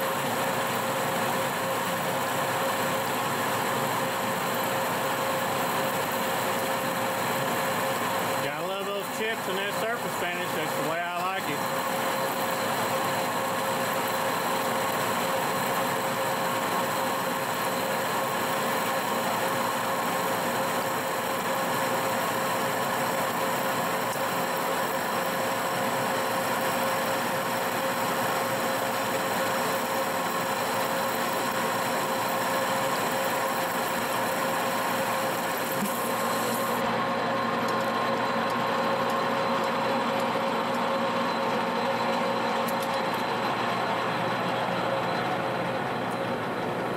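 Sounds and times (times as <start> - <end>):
lathe gear drive humming: 0.0 - 46.9
cutting tool hissing: 8.4 - 11.7, 33.7 - 36.8.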